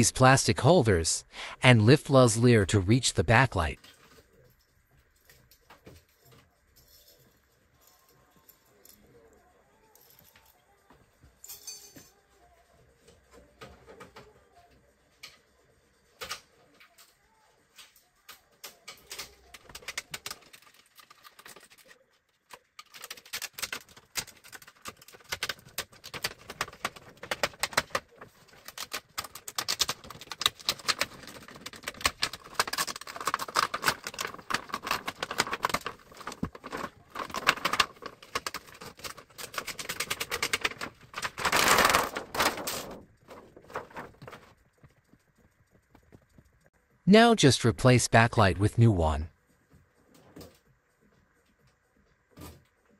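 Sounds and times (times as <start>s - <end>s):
plastic sheet crackling: 22.8s - 44.6s.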